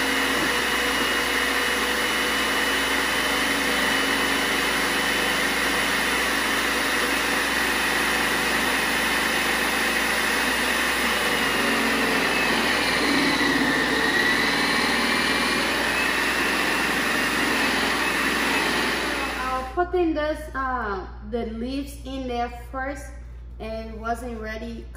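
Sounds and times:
food processor motor whining: 0:00.0 - 0:19.8.

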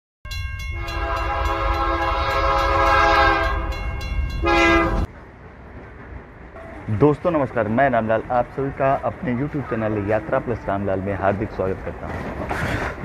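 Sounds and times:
train chime whistle: 0:00.3 - 0:05.1
low train rumble: 0:00.3 - 0:13.0.

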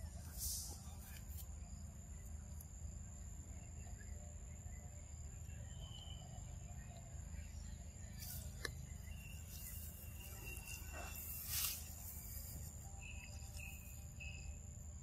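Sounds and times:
high insect whine: 0:00.0 - 0:15.0
grass and leaves rustling: 0:08.0 - 0:14.3.

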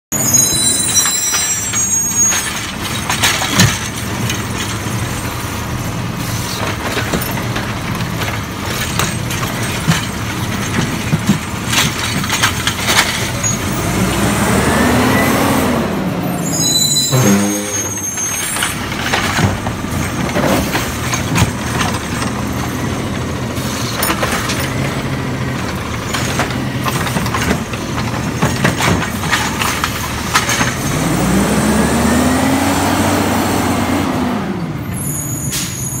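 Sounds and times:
hydraulic arm clanks and knocks: 0:00.9 - 0:05.5, 0:06.2 - 0:13.7, 0:18.2 - 0:31.1
diesel engine running: 0:02.2 - 0:35.6.

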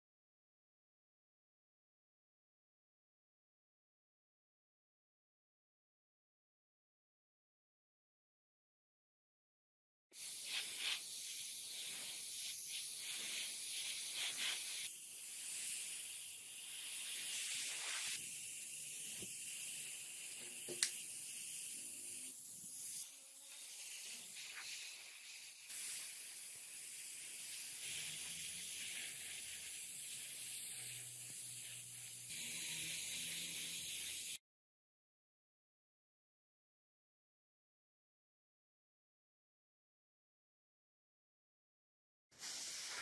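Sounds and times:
airbrush hissing: 0:10.2 - 0:34.4, 0:42.4 - 0:43.0.

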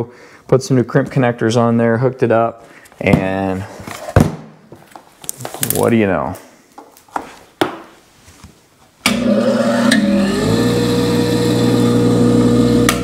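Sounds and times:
bench grinder motor humming: 0:09.1 - 0:13.0.

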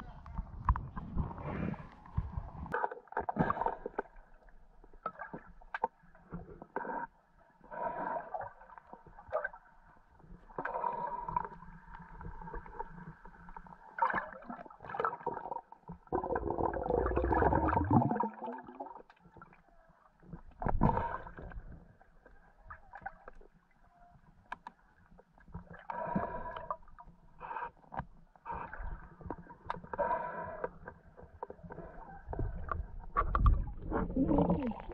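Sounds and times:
underwater gurgling and bubbling: 0:10.6 - 0:19.5, 0:31.6 - 0:34.9
gush of bubbles: 0:16.1 - 0:19.0, 0:33.6 - 0:34.9.

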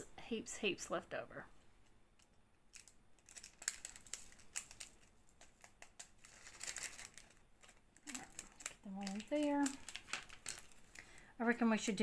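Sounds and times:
plastic bag crinkling: 0:02.7 - 0:11.3.

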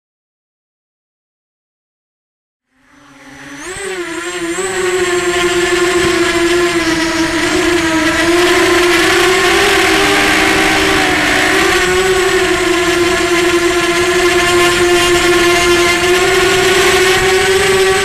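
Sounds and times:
quadcopter motors whining: 0:02.7 - 0:18.0.

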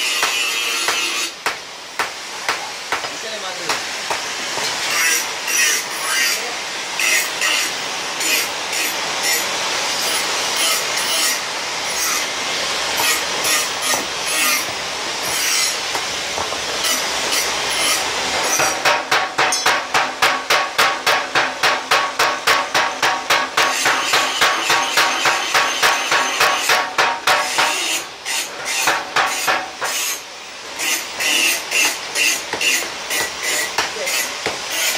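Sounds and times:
power hammer pounding steel: 0:00.0 - 0:05.8, 0:13.0 - 0:30.2, 0:30.8 - 0:34.9
steady noisy hiss: 0:00.0 - 0:34.9.

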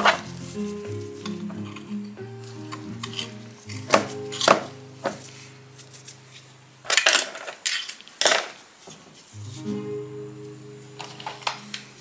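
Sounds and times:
background music: 0:00.0 - 0:06.4, 0:09.4 - 0:12.0
metallic clicks of steel parts: 0:06.9 - 0:08.5.

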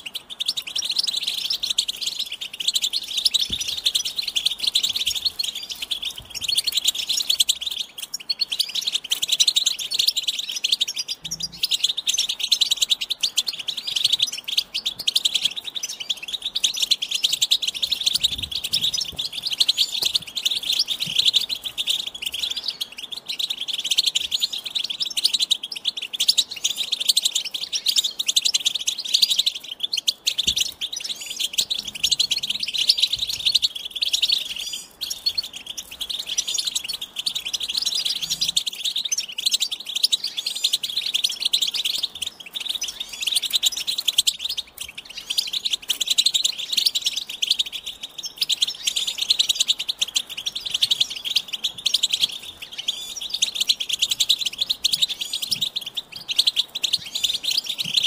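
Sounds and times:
goldfinch twittering song: 0:00.0 - 0:58.0.

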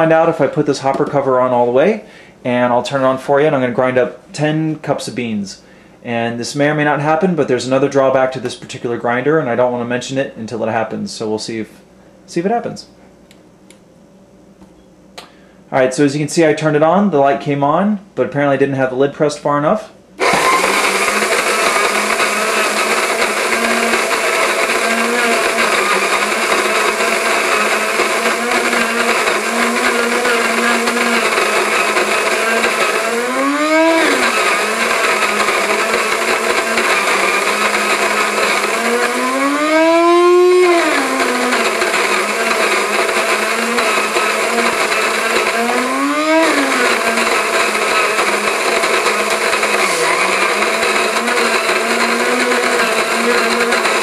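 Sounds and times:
coffee grinder grinding beans: 0:20.2 - 0:54.0.

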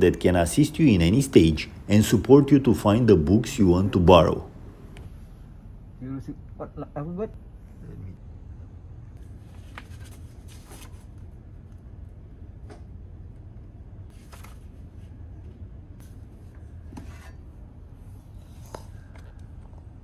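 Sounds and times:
steady low hum: 0:00.0 - 0:20.0
book pages rustling: 0:09.3 - 0:11.2, 0:14.1 - 0:15.1.

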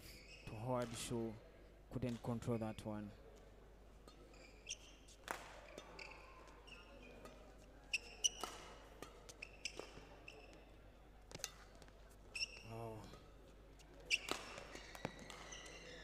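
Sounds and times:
shoes squeaking on court: 0:04.3 - 0:08.7, 0:09.3 - 0:10.7, 0:11.3 - 0:12.7, 0:13.8 - 0:16.0
rackets hitting shuttlecock: 0:05.2 - 0:06.1, 0:08.0 - 0:10.2, 0:14.1 - 0:16.0.

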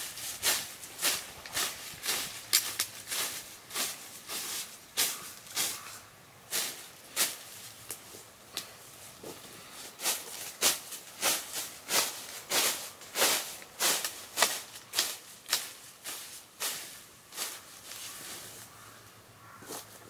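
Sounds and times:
sickle swishing through weeds: 0:00.0 - 0:18.9.

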